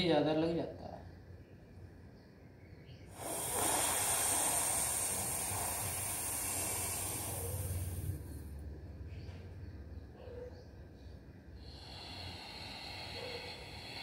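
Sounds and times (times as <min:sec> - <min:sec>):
hissing in-breath: 0:03.1 - 0:08.5, 0:11.6 - 0:14.0.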